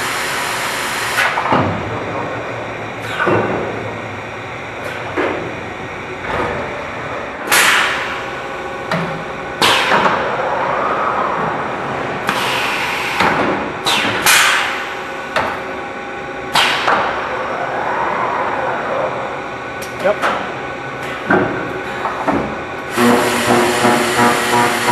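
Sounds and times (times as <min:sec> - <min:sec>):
machine hum: 0:00.0 - 0:24.9
rising and falling tone: 0:17.2 - 0:19.8.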